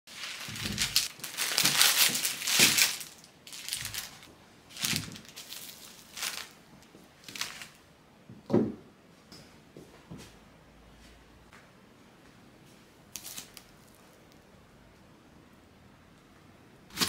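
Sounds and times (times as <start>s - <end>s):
packaging crinkling: 0.1s - 7.8s, 13.1s - 14.4s.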